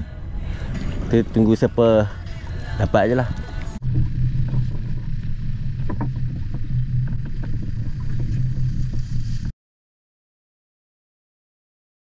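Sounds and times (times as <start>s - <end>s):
boat engine humming: 0.0s - 9.5s.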